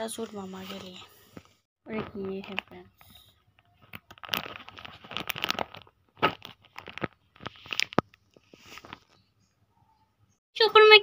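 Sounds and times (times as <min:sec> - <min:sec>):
plastic packaging crinkling: 0:01.9 - 0:09.2.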